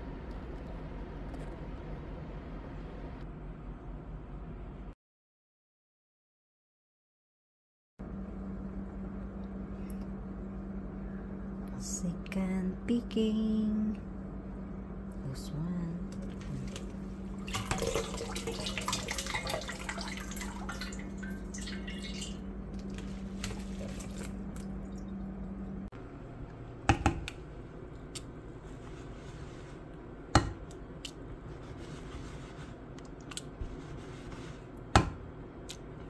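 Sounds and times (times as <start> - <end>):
steady hum: 0.0 - 4.9, 8.0 - 36.0
tap water running into a sink: 17.4 - 25.1.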